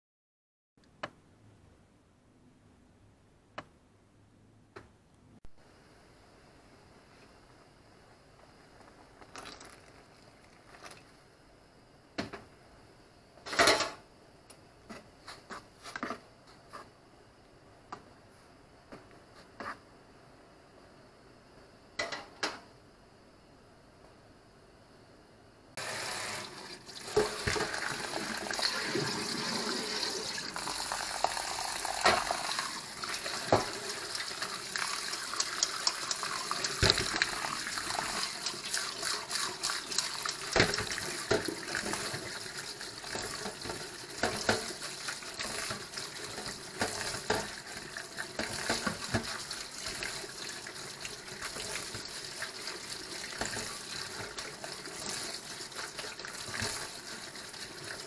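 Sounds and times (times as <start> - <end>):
tap water running into sink: 25.8 - 58.0.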